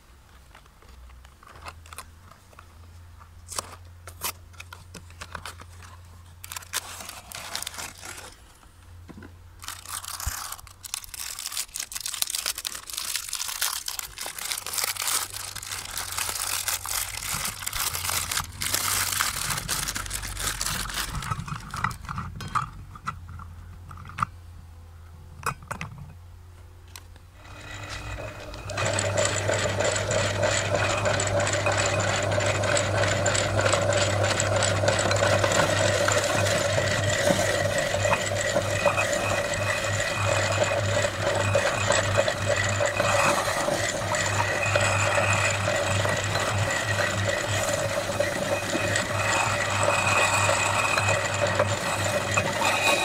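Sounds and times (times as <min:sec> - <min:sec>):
plastic wrappers crinkling: 0:03.5 - 0:08.5, 0:09.6 - 0:22.1
cardboard box opened: 0:06.5 - 0:08.5
small clicks and knocks: 0:09.1 - 0:24.4, 0:25.4 - 0:26.2
electric motor humming: 0:27.4 - 0:53.0.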